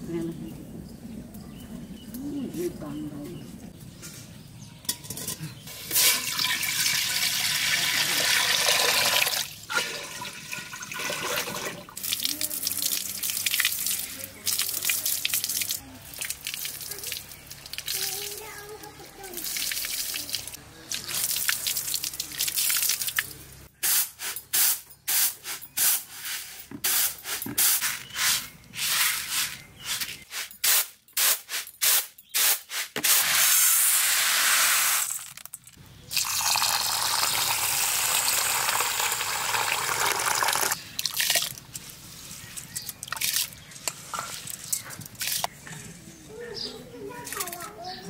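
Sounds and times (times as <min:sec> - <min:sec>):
water pouring and splashing: 0:05.7 - 0:23.4, 0:36.1 - 0:45.6
water splashing over leaves: 0:12.0 - 0:23.6.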